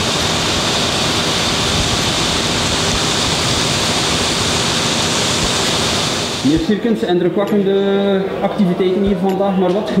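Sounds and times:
diesel engine running: 0.0 - 6.6.

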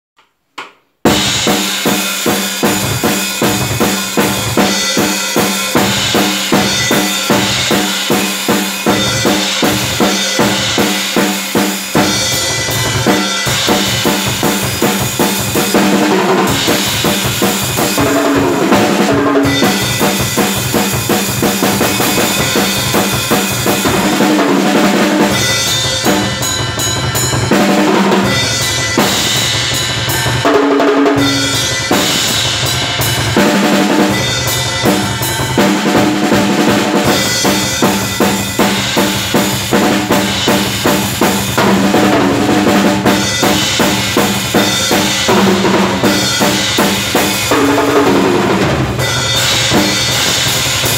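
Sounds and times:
drum kit played fast: 1.0 - 50.9.

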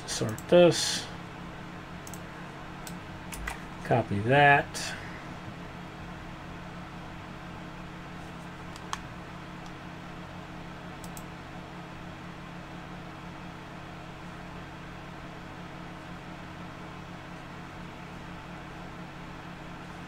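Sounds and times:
computer fans humming: 0.0 - 20.0
faint clicks: 2.0 - 2.2.

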